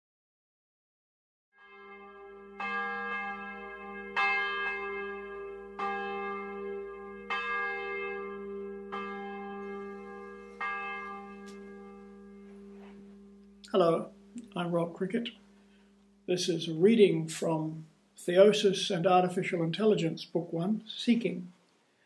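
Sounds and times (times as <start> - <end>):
bell tolling: 1.6 - 17.5.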